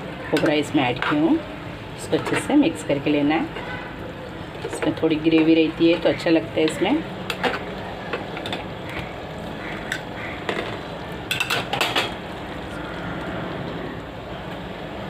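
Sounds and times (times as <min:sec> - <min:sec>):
metal utensils clinking on pot: 0:04.6 - 0:08.7, 0:09.8 - 0:12.2.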